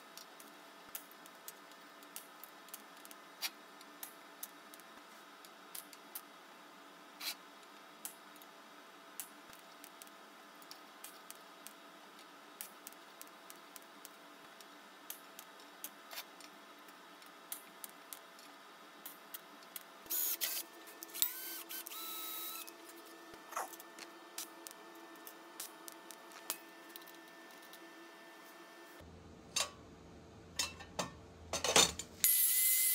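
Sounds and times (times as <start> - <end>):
welding arc hissing and whining: 17.5 - 29.0, 32.2 - 32.9.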